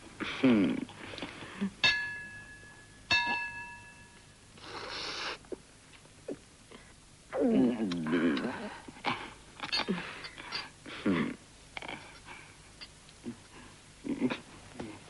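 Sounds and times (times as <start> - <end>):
glasses clinking: 1.8 - 4.2
sip: 4.6 - 5.5.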